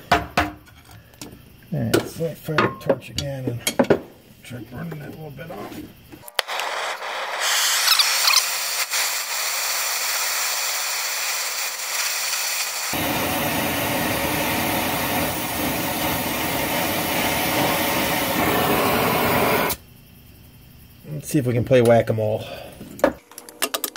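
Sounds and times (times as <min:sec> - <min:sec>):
torch flame hissing: 0:06.2 - 0:19.8
torch lighting pop: 0:06.2 - 0:19.8.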